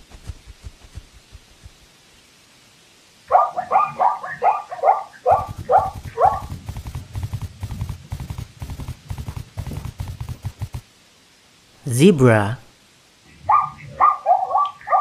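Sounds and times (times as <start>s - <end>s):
galloping hoofbeats: 0.0s - 1.8s, 5.3s - 10.8s.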